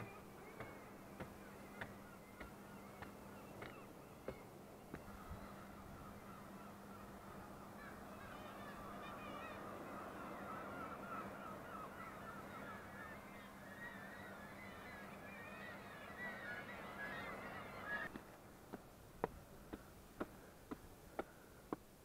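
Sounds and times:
seabirds calling: 0:00.0 - 0:18.4
footsteps on concrete steps: 0:18.1 - 0:21.9.

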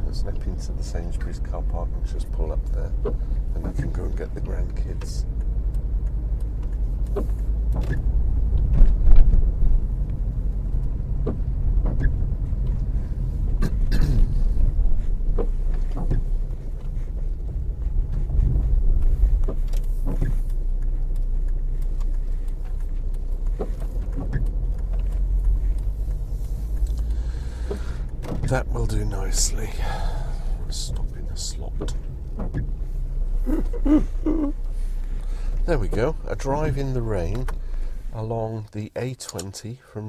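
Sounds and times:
car engine and tyre rumble: 0:00.0 - 0:40.0
knocks and clicks: 0:02.9 - 0:28.9, 0:30.8 - 0:33.0.

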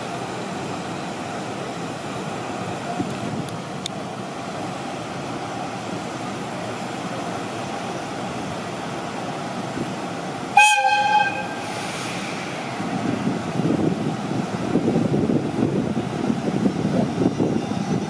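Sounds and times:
steady background noise: 0:00.0 - 0:18.0
locomotive whistle blast: 0:10.6 - 0:12.1.

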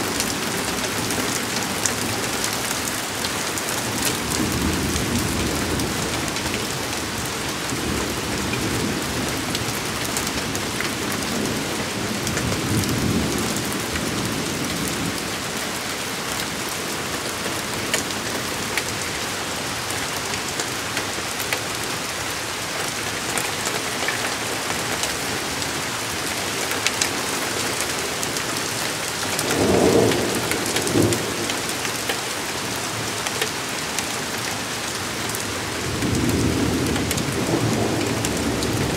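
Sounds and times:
heavy rain pouring: 0:00.0 - 0:38.9
raindrops ticking close by: 0:00.0 - 0:38.9
thunder rumbling: 0:29.3 - 0:31.7, 0:35.7 - 0:38.9.

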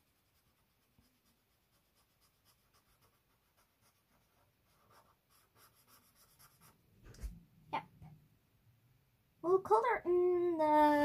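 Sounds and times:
marker scratching on paper: 0:00.0 - 0:07.3.

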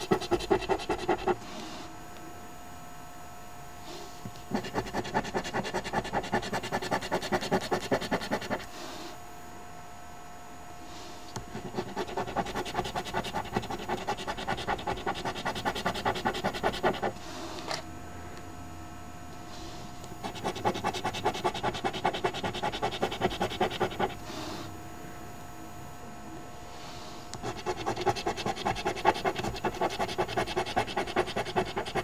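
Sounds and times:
coin scraping scratch card: 0:00.0 - 0:01.4, 0:04.5 - 0:08.7, 0:11.5 - 0:17.2, 0:20.2 - 0:24.2, 0:27.4 - 0:32.0.

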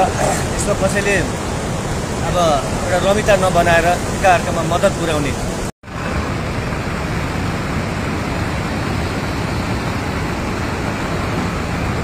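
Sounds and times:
flooded river rushing: 0:00.0 - 0:12.0.

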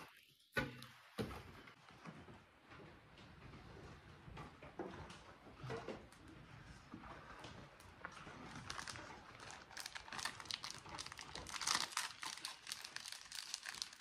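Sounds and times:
food wrapper crinkling and tearing: 0:08.6 - 0:14.0.

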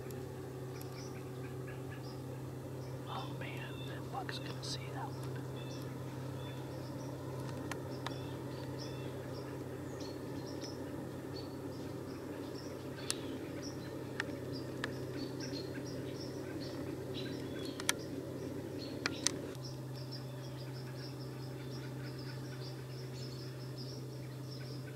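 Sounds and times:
low background hum and hiss: 0:00.0 - 0:24.9
faint bird chirps: 0:00.7 - 0:07.2.

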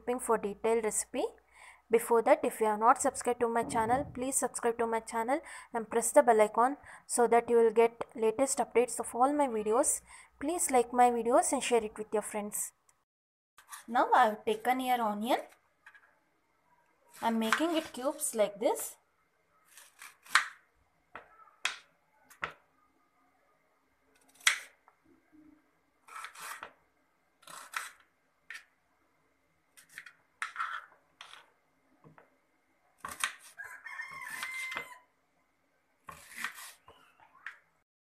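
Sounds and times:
steady-pitched tone: 0:03.2 - 0:04.5
knife chopping onion on board: 0:19.7 - 0:20.6, 0:33.0 - 0:33.5, 0:36.1 - 0:36.9.

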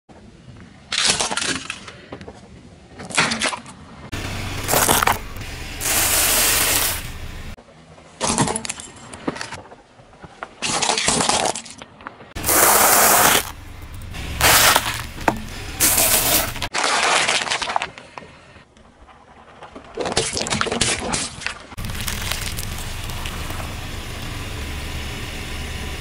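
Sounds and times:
tyre crushing objects: 0:04.2 - 0:07.0, 0:12.4 - 0:17.8.

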